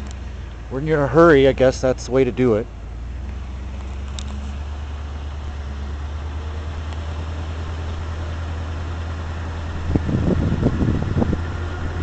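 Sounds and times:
car engine and road noise: 0:00.0 - 0:12.0
wind buffeting microphone: 0:07.1 - 0:12.0.

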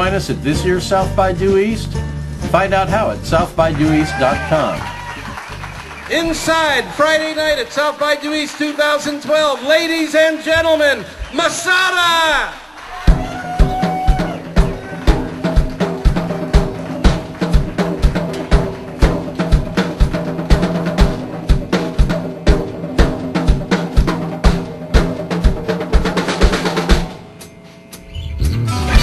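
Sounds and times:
drums and cymbals: 0:13.0 - 0:29.0
live rock band: 0:13.1 - 0:27.7.

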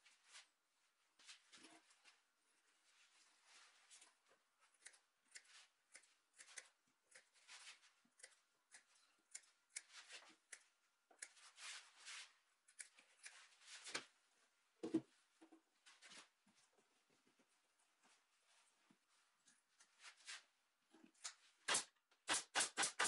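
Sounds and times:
scissors snipping padding: 0:04.8 - 0:07.4.

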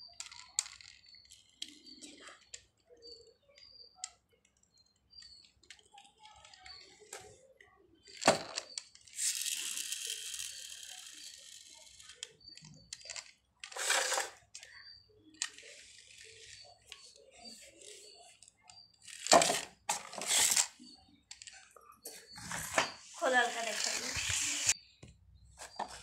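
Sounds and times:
plastic rustling: 0:22.3 - 0:24.8.

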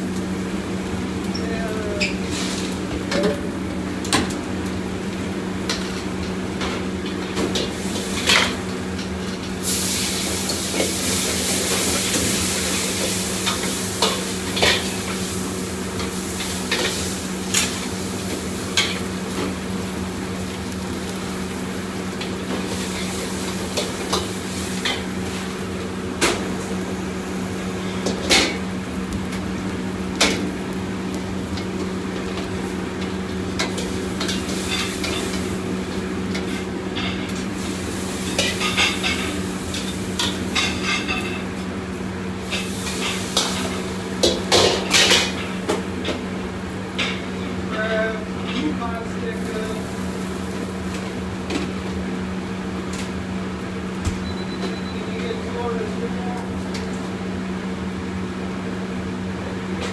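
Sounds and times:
hot oil sizzling: 0:00.0 - 0:59.8.

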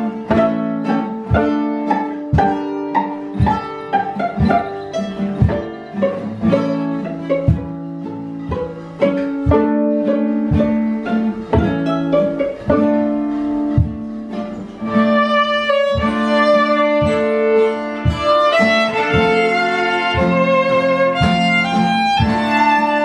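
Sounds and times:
bowed string melody: 0:00.0 - 0:23.0
plucked string notes: 0:00.0 - 0:23.0.

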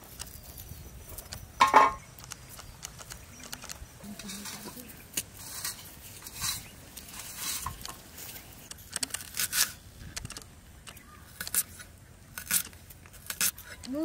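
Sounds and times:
knife scraping onion skin: 0:11.3 - 0:13.9.

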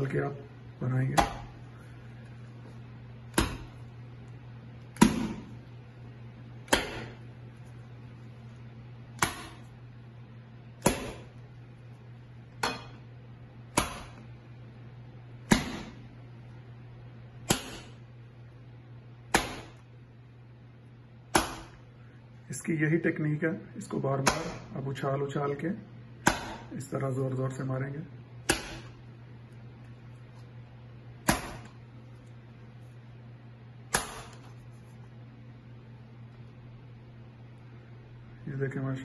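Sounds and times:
batter slapped in glass bowl: 0:01.2 - 0:01.6, 0:03.3 - 0:03.8, 0:06.7 - 0:07.2, 0:09.2 - 0:09.7, 0:10.8 - 0:11.4, 0:13.7 - 0:14.3, 0:15.4 - 0:16.0, 0:17.4 - 0:18.0, 0:19.3 - 0:19.9, 0:21.3 - 0:21.8, 0:24.2 - 0:24.7, 0:26.2 - 0:26.8, 0:28.4 - 0:29.0, 0:31.2 - 0:31.8, 0:33.9 - 0:34.7.

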